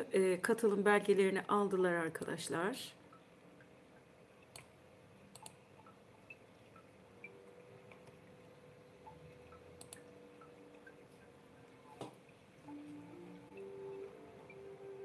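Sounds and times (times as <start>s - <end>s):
faint steady hum: 0.0s - 15.0s
faint sharp clicks: 5.3s - 6.0s, 9.5s - 11.0s.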